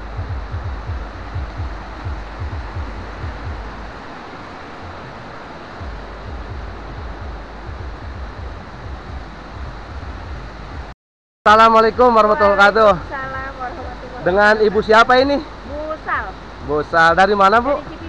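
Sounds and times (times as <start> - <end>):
wind buffeting microphone: 0.0 - 10.9
mountain stream rushing: 0.0 - 18.0.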